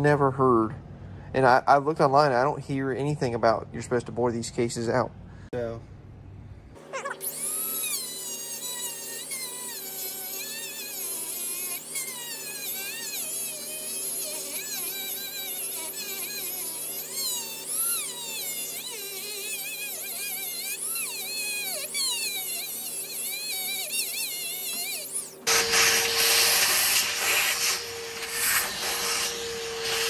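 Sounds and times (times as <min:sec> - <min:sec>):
rotary tool grinding metal: 0:07.0 - 0:30.0.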